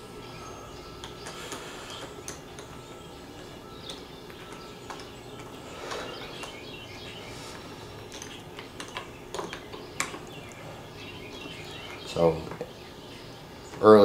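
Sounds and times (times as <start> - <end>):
birds chirping: 0.0 - 14.0
hand tools clicking and knocking: 7.5 - 10.5.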